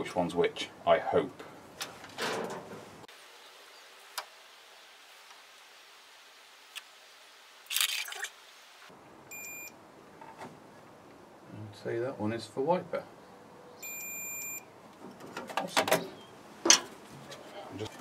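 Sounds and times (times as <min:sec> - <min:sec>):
multimeter high-pitched beep: 0:09.3 - 0:09.7, 0:13.8 - 0:14.6.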